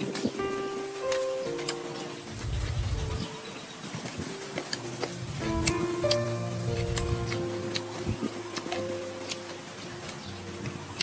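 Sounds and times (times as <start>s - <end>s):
plucked string music: 0.0s - 11.0s
sharp clicks: 4.0s - 10.2s.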